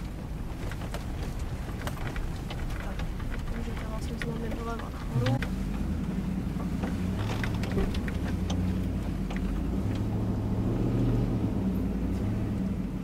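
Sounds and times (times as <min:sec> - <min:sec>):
knocks and rattles: 0:00.0 - 0:10.2
car engine droning: 0:00.0 - 0:13.0.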